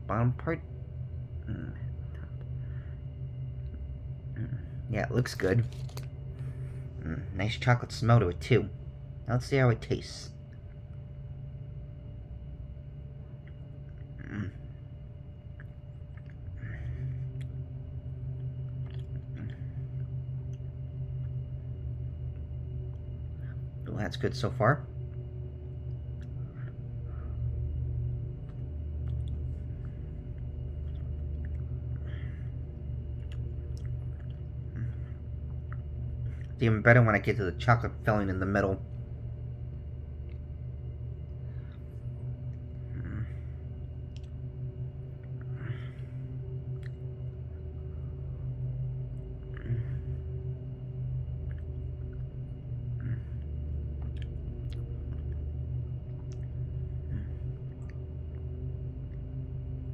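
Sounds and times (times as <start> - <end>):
steady low hum: 0.0 - 59.9
soft chewing: 18.3 - 21.4, 28.3 - 36.6, 51.3 - 59.3
person chewing: 18.7 - 19.6, 33.2 - 36.6, 54.0 - 55.4.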